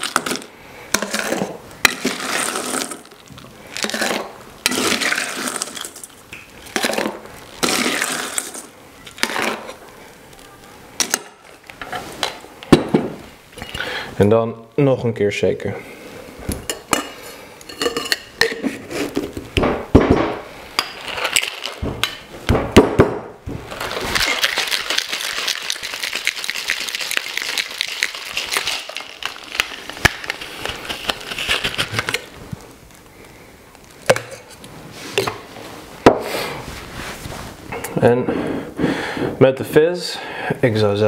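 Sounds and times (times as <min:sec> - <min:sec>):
ice clinking on metal: 0:00.0 - 0:09.6, 0:20.8 - 0:21.8, 0:23.8 - 0:29.9
ice rattling in cocktail shaker: 0:00.0 - 0:09.6, 0:21.0 - 0:21.8, 0:23.7 - 0:32.3.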